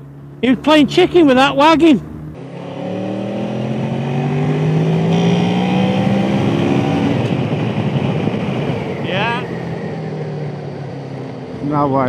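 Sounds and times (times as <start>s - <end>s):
motorcycle engine accelerating: 0.0s - 12.0s
wind rushing on microphone: 3.3s - 12.0s.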